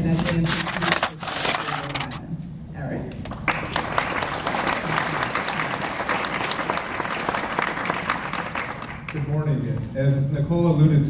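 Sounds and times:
audience applauding: 0:03.3 - 0:09.3.

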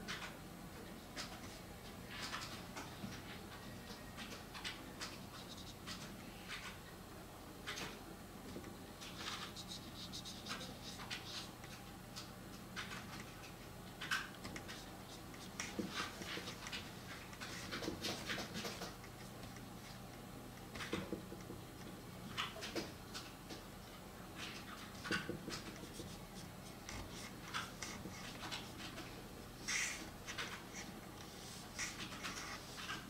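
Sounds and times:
brush pen scratching on paper: 0:09.1 - 0:11.6, 0:24.9 - 0:33.0.

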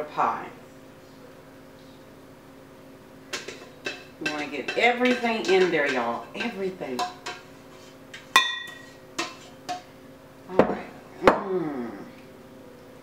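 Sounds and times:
spoon clinking on metal pot: 0:03.3 - 0:07.5, 0:08.1 - 0:09.9
pot knocking on countertop: 0:03.4 - 0:07.4.

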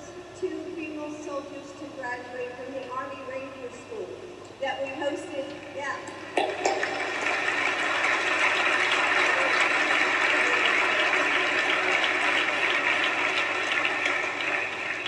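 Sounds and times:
large crowd applauding: 0:06.4 - 0:15.0.

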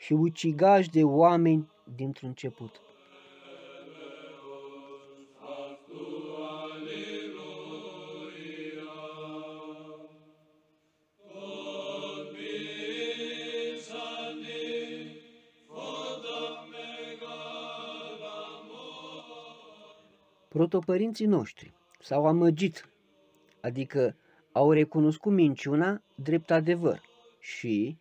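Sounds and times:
low voices chanting: 0:00.9 - 0:10.5, 0:11.2 - 0:20.7, 0:23.0 - 0:23.7, 0:25.6 - 0:27.5.

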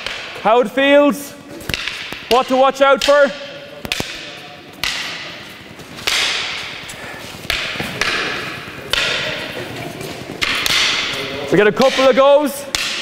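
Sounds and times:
wooden sticks clacking together: 0:10.4 - 0:11.2.

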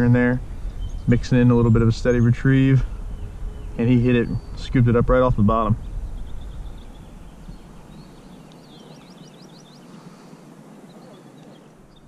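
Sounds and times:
low rumble: 0:00.0 - 0:09.2
songbird singing descending notes: 0:00.0 - 0:12.0.

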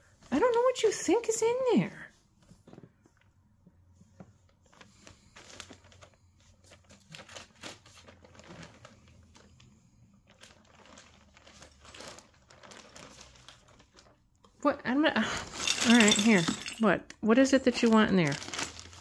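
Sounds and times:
plastic bag crinkling: 0:04.6 - 0:14.2, 0:15.3 - 0:16.9, 0:17.7 - 0:19.0.

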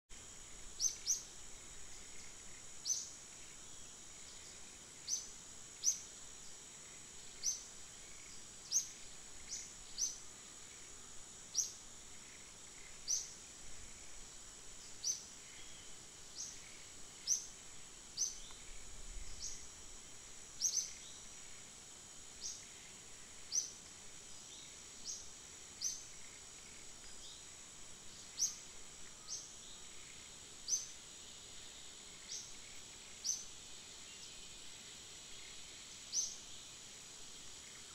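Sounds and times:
insect drone: 0:00.1 - 0:37.9.

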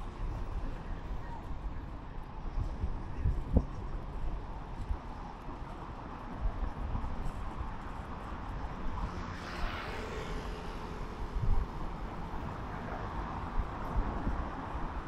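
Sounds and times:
road traffic going by: 0:00.0 - 0:15.0
wind buffeting microphone: 0:00.1 - 0:09.3, 0:10.0 - 0:15.0
vehicle passing: 0:08.8 - 0:13.6.

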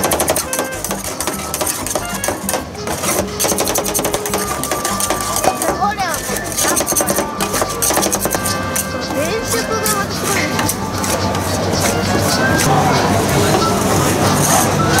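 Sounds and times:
metal spatulas chopping on pan: 0:00.0 - 0:12.3
voices chattering: 0:00.0 - 0:15.0.

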